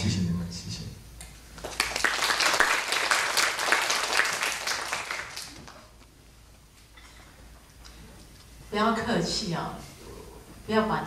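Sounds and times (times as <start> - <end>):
audience applauding: 1.6 - 6.0.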